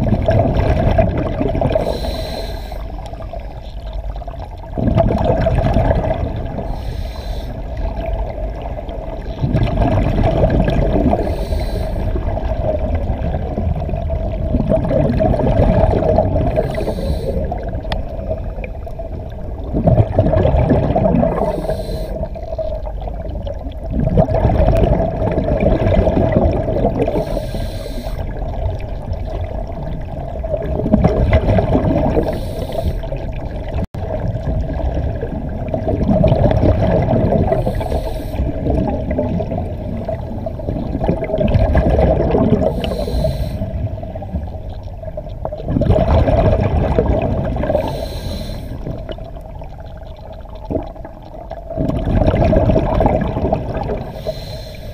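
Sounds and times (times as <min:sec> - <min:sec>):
gurgle of exhaled bubbles: 0:00.0 - 0:54.9
regulator inhalation hiss: 0:01.8 - 0:03.0, 0:06.7 - 0:07.6, 0:11.2 - 0:12.1, 0:16.6 - 0:17.5, 0:21.4 - 0:22.3, 0:27.1 - 0:28.2, 0:32.2 - 0:33.1, 0:37.6 - 0:38.4, 0:42.8 - 0:43.7, 0:47.8 - 0:48.8, 0:54.1 - 0:54.9.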